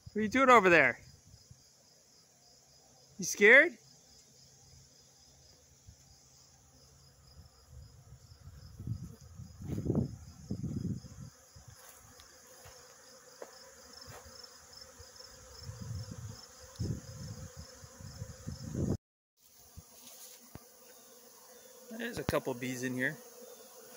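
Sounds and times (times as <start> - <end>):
cricket chirping: 0.0 - 18.9
honeybees buzzing: 1.4 - 23.9
bee flying close past: 3.9 - 23.9.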